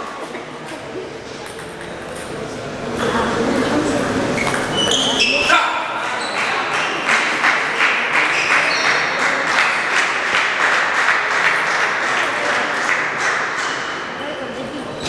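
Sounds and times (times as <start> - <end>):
spectators applauding: 6.0 - 14.1.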